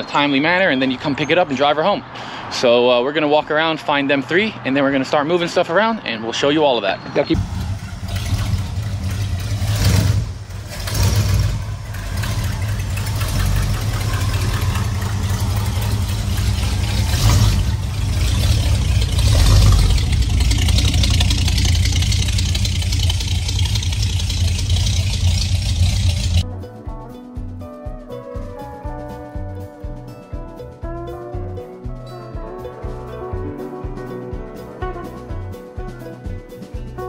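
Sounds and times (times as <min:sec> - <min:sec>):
pickup truck engine idling: 0:07.4 - 0:26.4.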